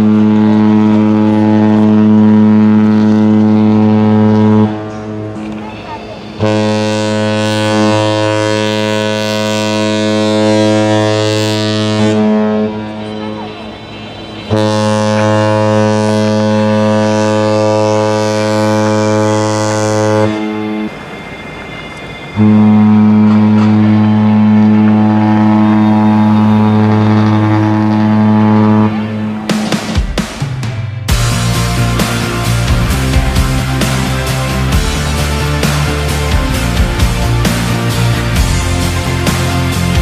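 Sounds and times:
ship's horn long deep blast: 0:00.0 - 0:13.5, 0:14.4 - 0:21.1, 0:22.4 - 0:29.5.

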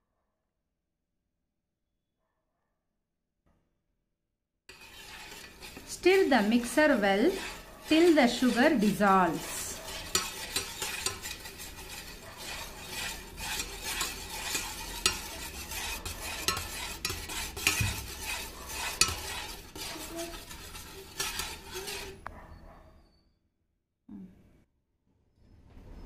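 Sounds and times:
spoon stirring in metal pot: 0:04.7 - 0:22.3.

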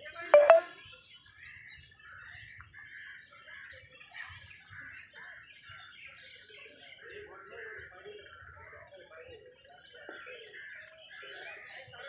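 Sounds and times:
loud pitched tone: 0:00.4 - 0:00.7.

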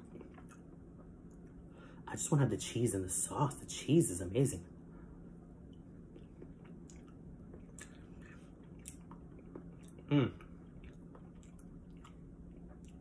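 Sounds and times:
person chewing noodles: 0:00.0 - 0:01.6, 0:05.6 - 0:13.0
short vocal sound: 0:10.1 - 0:10.4.

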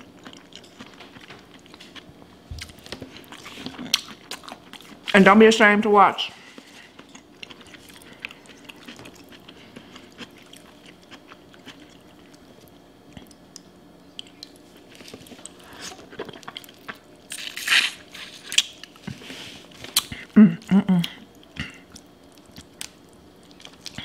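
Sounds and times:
quiet chewing: 0:00.0 - 0:05.1, 0:06.4 - 0:17.5
wet clicks and squishes of food: 0:10.2 - 0:15.6.

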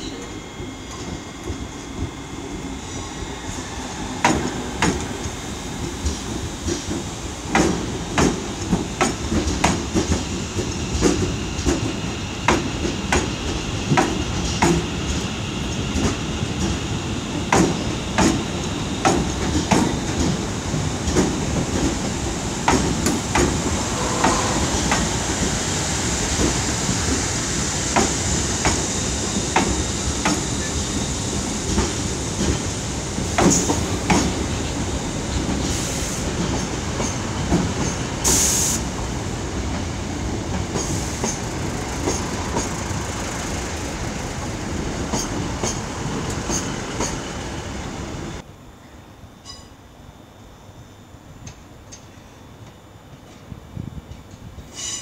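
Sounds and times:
train rolling rumble: 0:00.0 - 0:48.5
train wheels clicking over rail joints: 0:04.2 - 0:34.7, 0:39.7 - 0:47.4.

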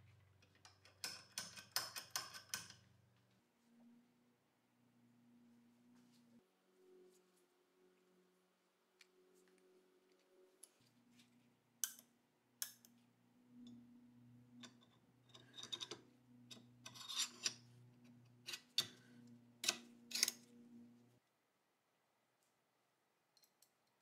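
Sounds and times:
steel scraping on steel: 0:15.3 - 0:17.7.

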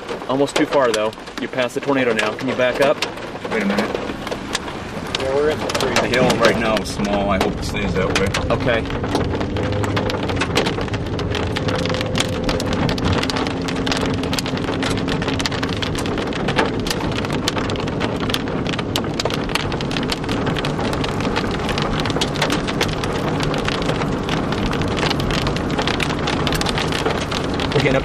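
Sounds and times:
rain on car roof: 0:00.0 - 0:28.0
car engine humming faintly: 0:00.2 - 0:18.7.

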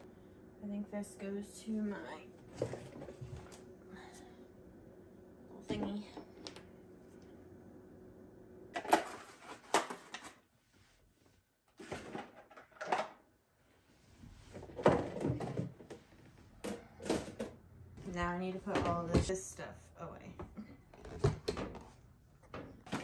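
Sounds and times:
objects knocking and clattering: 0:11.8 - 0:13.2, 0:14.5 - 0:19.4, 0:20.4 - 0:23.0.

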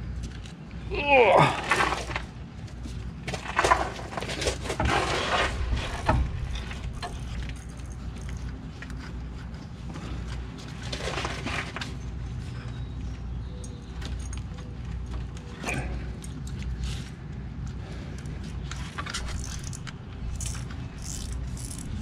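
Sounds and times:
low background hum: 0:00.0 - 0:22.0
wiring harness rustling: 0:14.0 - 0:22.0.

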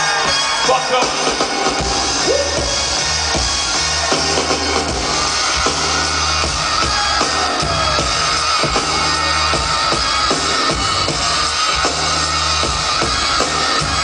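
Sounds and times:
band playing hip-hop beat: 0:00.0 - 0:14.0
deep bass line: 0:00.4 - 0:14.0.

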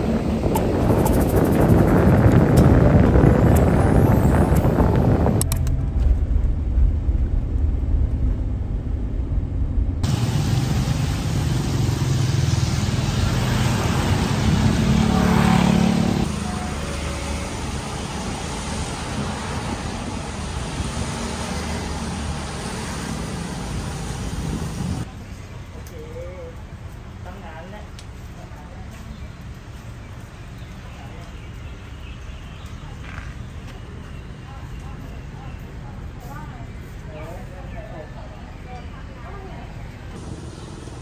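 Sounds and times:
wind buffeting microphone: 0:00.0 - 0:10.1
street traffic: 0:00.0 - 0:41.0.

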